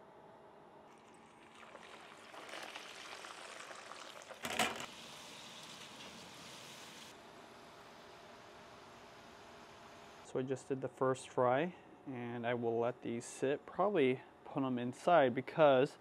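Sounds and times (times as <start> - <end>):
oil sizzling and crackling: 0.9 - 7.2
wire strainer clatter: 4.4 - 4.9.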